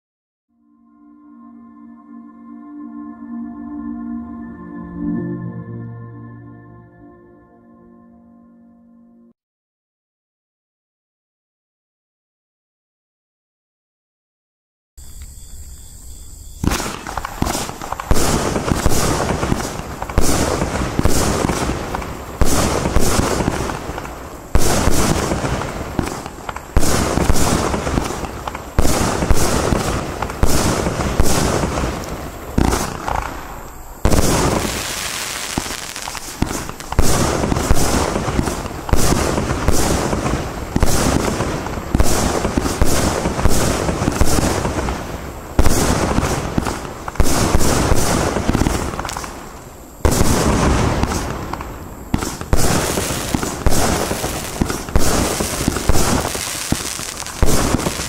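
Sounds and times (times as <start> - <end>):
firework shot bangs: 16.6 - 45.0, 45.6 - 58.0
firework hiss: 16.6 - 58.0.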